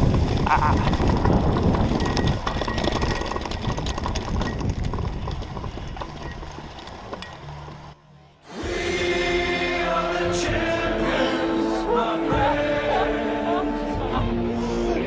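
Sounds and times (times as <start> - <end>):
wind on microphone: 0.0 - 6.6
mountain bike rattling over grass: 0.0 - 8.0
music with held singing tones: 8.0 - 15.0.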